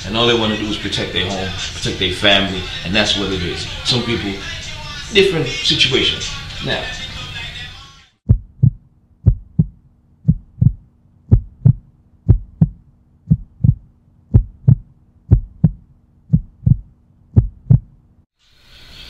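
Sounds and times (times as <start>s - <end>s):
heartbeat thumps: 8.2s - 18.0s.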